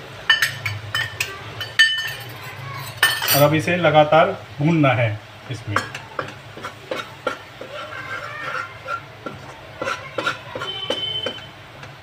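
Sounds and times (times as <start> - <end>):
spoon scraping metal pan: 5.8 - 11.5.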